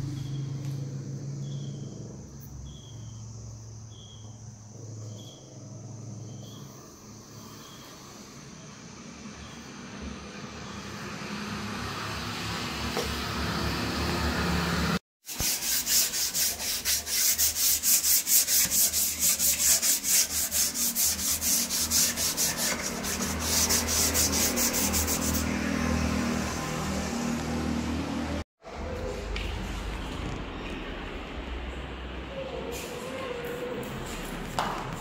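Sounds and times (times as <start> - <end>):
sandpaper rubbing wood: 15.2 - 25.8.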